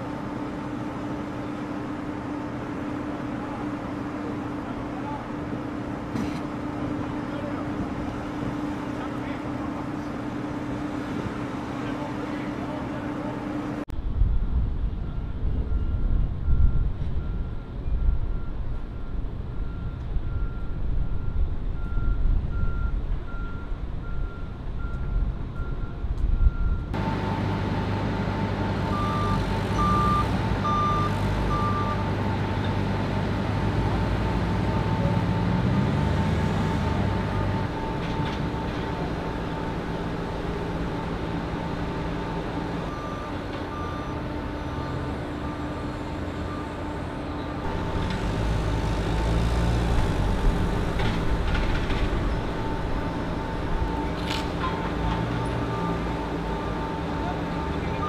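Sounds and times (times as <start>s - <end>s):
forklift engine rumble: 0.0s - 58.0s
forklift backup beeps: 15.0s - 33.0s, 33.6s - 48.1s, 51.9s - 58.0s
truck reversing alarm beeping: 15.0s - 58.0s.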